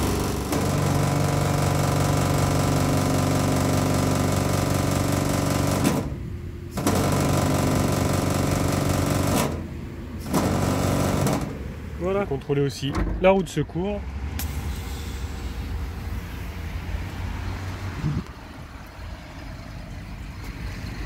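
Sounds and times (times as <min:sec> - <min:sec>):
air compressor running: 0:00.0 - 0:11.8.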